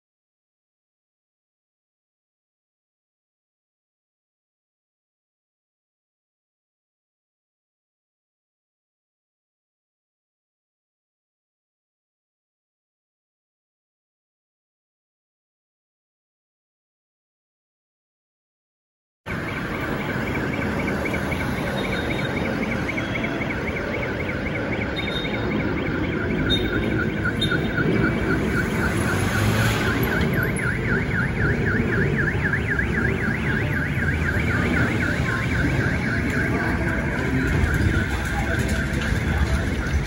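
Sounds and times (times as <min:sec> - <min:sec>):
jet engines rumbling overhead: 0:19.3 - 0:40.0.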